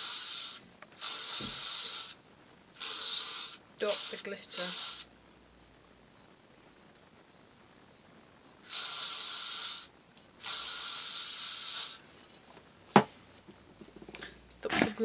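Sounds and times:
aerosol can spraying: 0.0 - 2.2, 2.8 - 5.1, 8.6 - 12.0.

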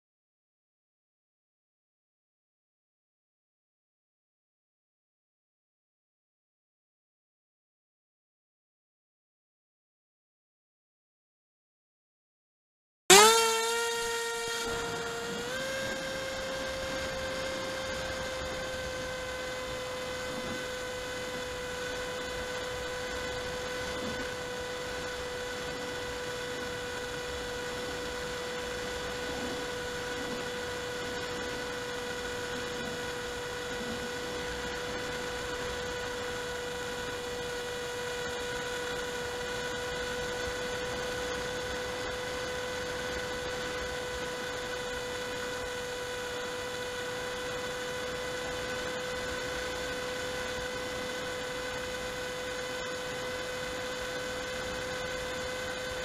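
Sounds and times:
model aircraft motor humming: 13.1 - 56.0.

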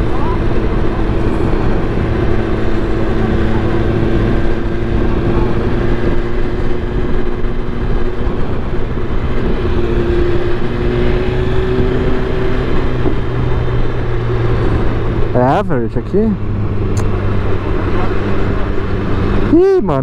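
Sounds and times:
motorcycle engine cruising: 0.0 - 20.0
wind and road noise: 0.0 - 20.0.

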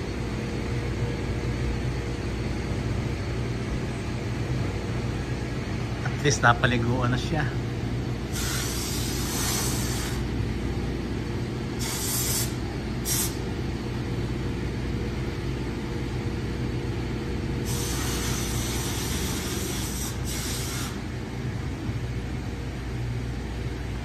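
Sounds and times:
low machine hum: 0.0 - 24.0
pressure washer spray hissing: 8.3 - 10.2, 11.8 - 13.4, 17.7 - 21.0.

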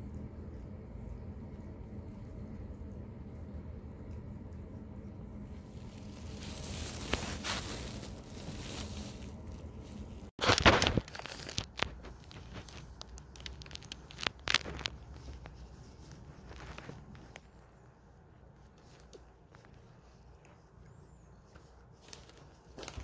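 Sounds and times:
plastic sheet crinkling and rustling: 5.6 - 17.4, 22.0 - 23.0.

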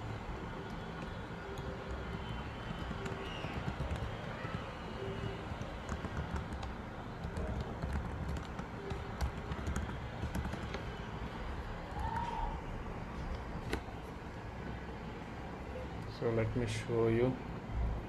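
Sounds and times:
keyboard keys clicking: 0.6 - 11.4.

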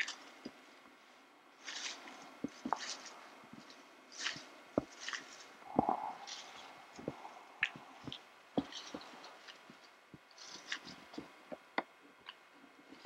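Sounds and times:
footsteps through dry grass: 1.6 - 11.4.

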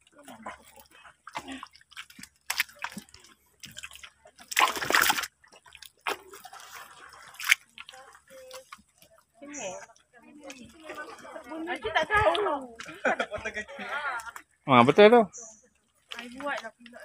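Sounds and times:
boots squelching in mud: 0.4 - 8.9.

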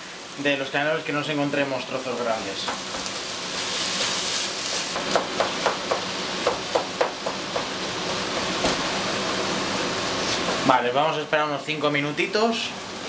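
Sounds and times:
meat sizzling in a pot: 0.0 - 13.0.

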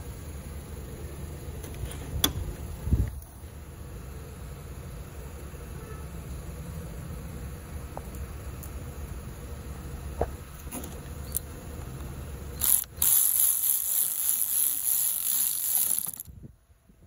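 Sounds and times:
impact wrench running: 12.6 - 16.3.

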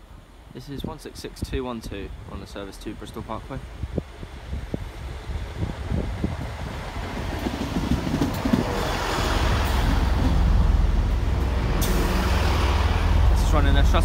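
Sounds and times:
diesel train rumbling: 0.0 - 14.0.

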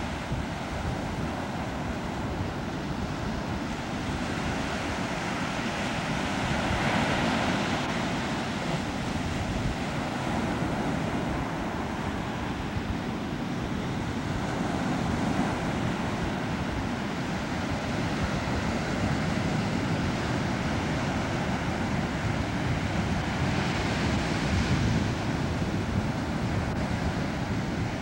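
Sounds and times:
ocean surf breaking: 0.0 - 28.0
wind rumbling on microphone: 0.0 - 28.0.

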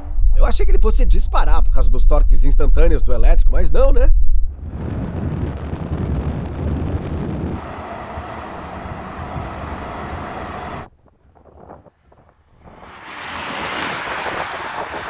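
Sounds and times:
road and wind noise: 3.7 - 15.0
car engines at speed: 4.8 - 10.9, 12.5 - 15.0.

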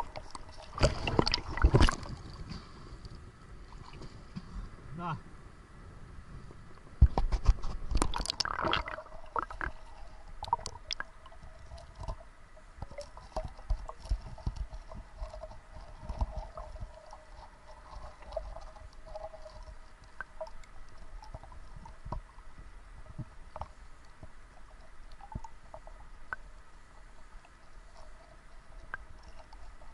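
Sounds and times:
water splashing: 0.0 - 2.8, 7.0 - 29.9
muffled underwater clicks and knocks: 0.0 - 3.2, 6.4 - 26.6
faint steady tone: 8.9 - 29.9.

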